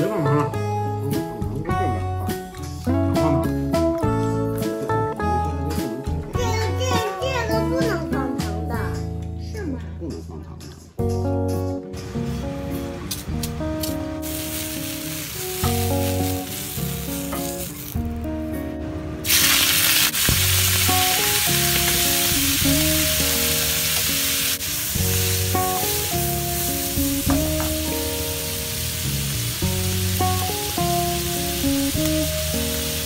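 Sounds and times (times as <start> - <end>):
background music: 0.0 - 33.0
squid sizzling in hot pan: 14.2 - 18.1, 19.2 - 33.0.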